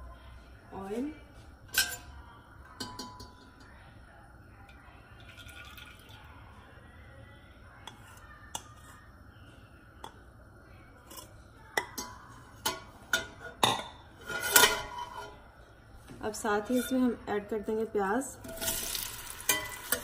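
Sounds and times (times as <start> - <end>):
metal ladle clinking in pot: 1.7 - 3.7, 11.1 - 15.3, 18.4 - 20.0
oil trickling into a pot: 5.1 - 6.4.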